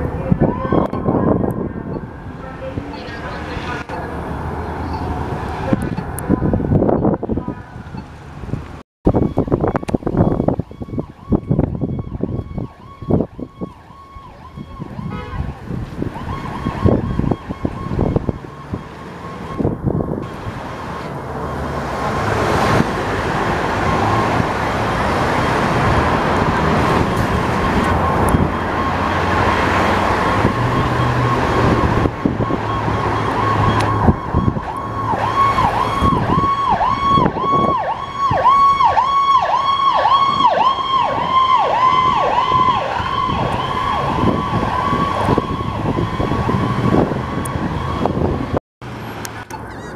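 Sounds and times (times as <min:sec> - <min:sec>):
electronic siren: 0:00.0 - 0:08.1, 0:09.1 - 0:22.6, 0:23.4 - 0:48.6
vehicle engine and road noise: 0:00.0 - 0:49.9.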